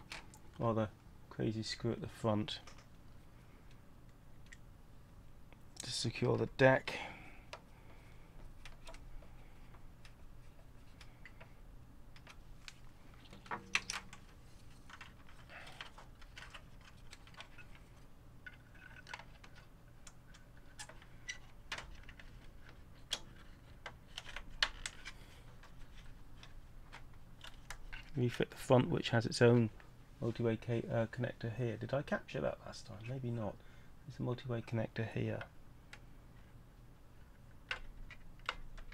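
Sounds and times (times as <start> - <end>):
small clicks and rattles of parts: 0.0 - 0.6, 2.5 - 4.7, 7.4 - 28.2, 35.3 - 38.9.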